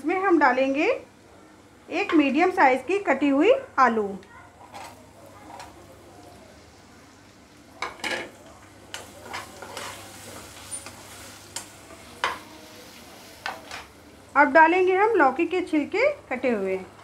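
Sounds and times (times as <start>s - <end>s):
frying sizzle: 0.0s - 17.0s
metal spatula scraping pan: 9.0s - 12.5s.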